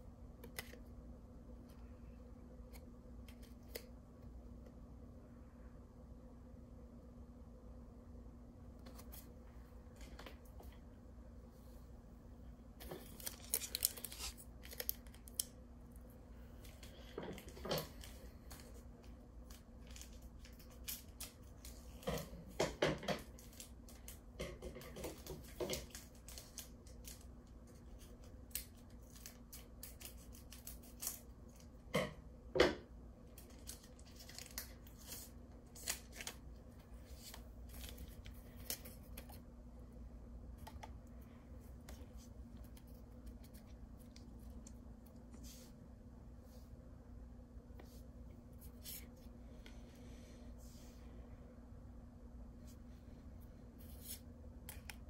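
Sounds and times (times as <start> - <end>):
foil wrappers crinkling: 12.8 - 15.5, 33.4 - 36.4.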